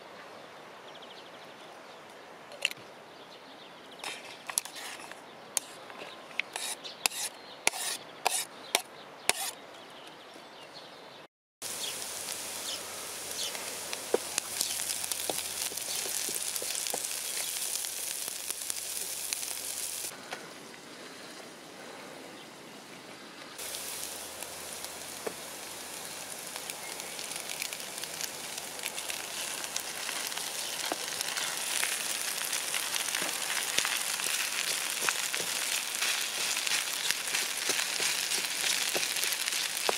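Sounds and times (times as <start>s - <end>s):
knife scraping plastic board: 4.0s - 5.8s, 6.4s - 9.6s
wooden spoon stirring: 4.0s - 8.4s, 14.0s - 17.7s, 28.9s - 39.9s
onions sizzling in pan: 11.6s - 20.1s, 23.6s - 39.9s.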